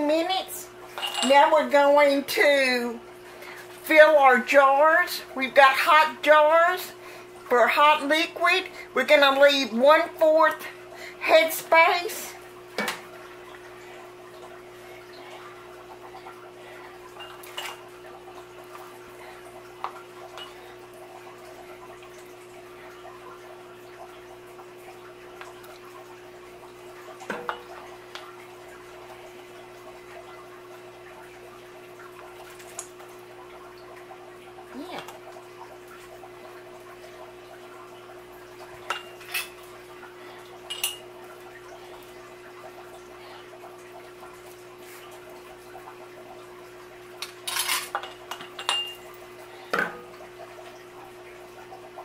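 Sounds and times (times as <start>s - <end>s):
glass jars clinking: 1.0s - 1.4s, 40.7s - 41.0s, 47.2s - 49.0s.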